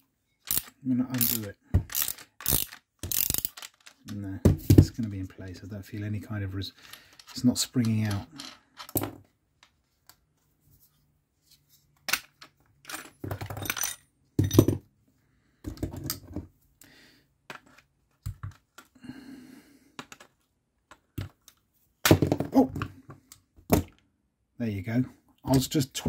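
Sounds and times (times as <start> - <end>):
small metal parts clinking: 0.4 - 4.2, 6.8 - 9.0, 12.3 - 14.8.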